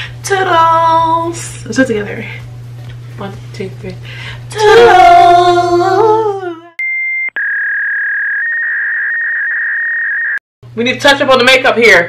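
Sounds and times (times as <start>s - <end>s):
electronic beep tone: 6.8s - 10.4s.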